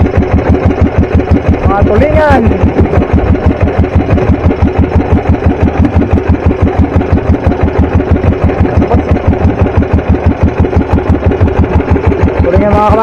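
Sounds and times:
boat engine chugging: 0:00.0 - 0:13.0.

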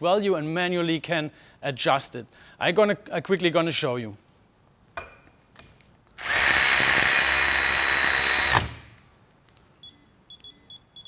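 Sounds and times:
motorised ratchet running: 0:06.2 - 0:08.8.

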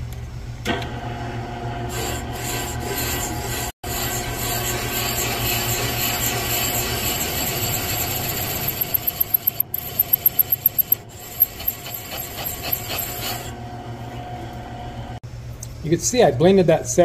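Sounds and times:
cutter motor hum: 0:01.8 - 0:14.6
metal scraping: 0:01.9 - 0:13.6.

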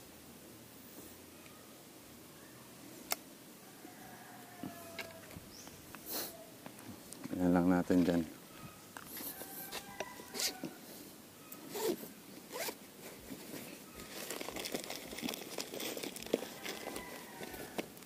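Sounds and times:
zipper rasping: 0:11.7 - 0:12.8
hands rummaging in bag: 0:11.7 - 0:18.0.

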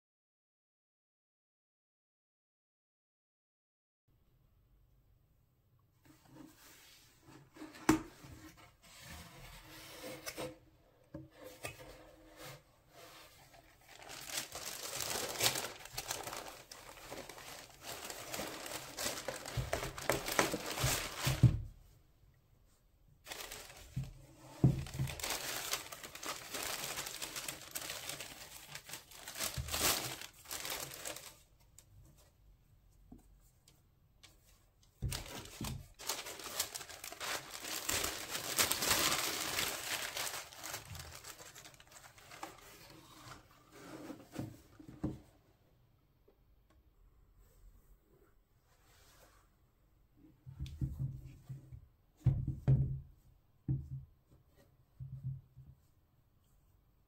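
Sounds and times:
tissue paper crinkling: 0:13.0 - 0:21.5, 0:23.2 - 0:31.5, 0:35.0 - 0:43.4.

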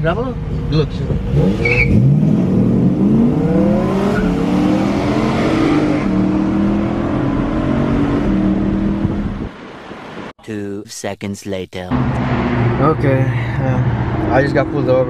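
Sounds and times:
car engine accelerating hard: 0:00.3 - 0:09.5, 0:12.0 - 0:15.0.

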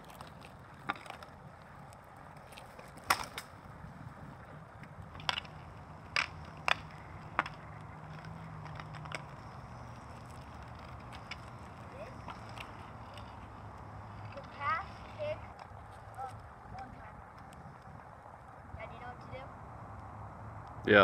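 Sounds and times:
skate wheels rolling on asphalt: 0:00.0 - 0:21.0
hockey stick clacking on ball: 0:05.1 - 0:13.4.

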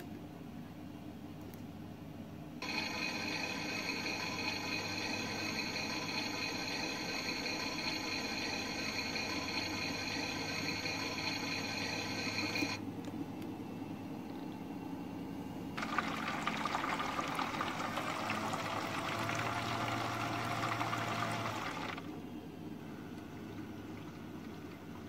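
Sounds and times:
low steady hum: 0:00.0 - 0:25.0
water rushing into washing machine: 0:02.6 - 0:12.8, 0:15.8 - 0:22.2, 0:23.3 - 0:25.0.

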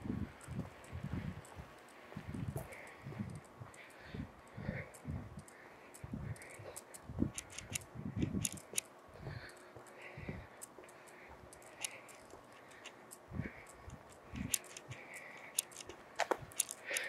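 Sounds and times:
footsteps on concrete: 0:00.5 - 0:03.8, 0:08.2 - 0:13.3, 0:13.9 - 0:16.8.

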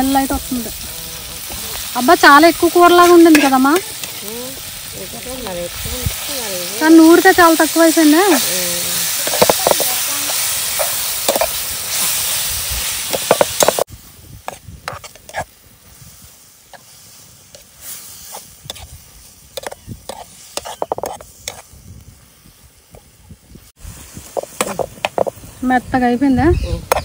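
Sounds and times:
food sizzling in oil: 0:00.0 - 0:27.0
spoon scraping metal pan: 0:02.6 - 0:04.2, 0:06.9 - 0:12.3, 0:14.5 - 0:15.5, 0:17.5 - 0:21.7.

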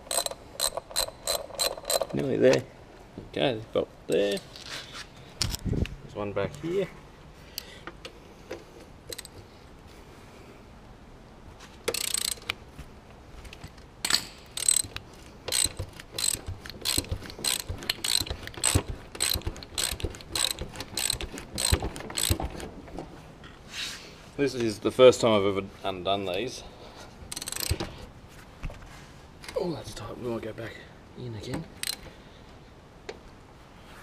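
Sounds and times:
ratchet wrench clicking: 0:00.0 - 0:02.2, 0:09.1 - 0:09.4, 0:11.9 - 0:12.6, 0:14.1 - 0:22.4, 0:27.3 - 0:27.8, 0:31.8 - 0:32.1
brief scrape: 0:23.7 - 0:24.2.

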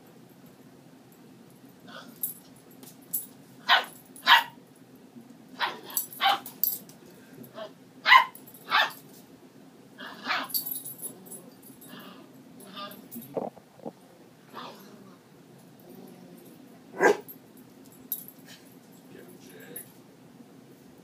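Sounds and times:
dog play barking: 0:03.6 - 0:04.6, 0:05.6 - 0:06.7, 0:08.0 - 0:09.1, 0:10.1 - 0:10.7, 0:16.9 - 0:17.3.

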